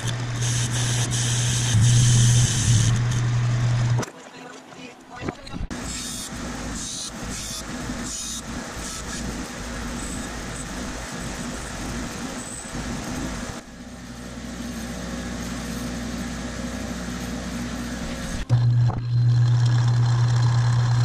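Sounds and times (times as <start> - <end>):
bench grinder motor hum: 0.0 - 4.0, 15.2 - 21.0.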